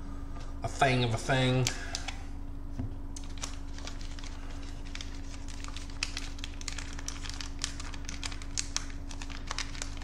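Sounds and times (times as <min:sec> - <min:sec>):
wrapper crinkling: 0:03.2 - 0:10.0.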